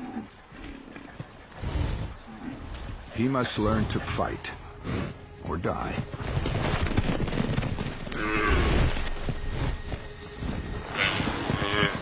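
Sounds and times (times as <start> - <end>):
low rumbling and scuffling: 4.9 - 12.0
yak lowing: 8.0 - 9.8.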